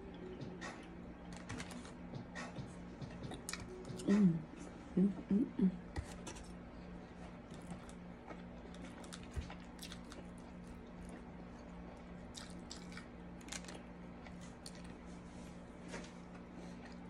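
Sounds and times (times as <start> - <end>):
steady low hum: 0.0 - 17.0
person chewing: 3.2 - 4.1, 7.2 - 15.1, 15.9 - 17.0.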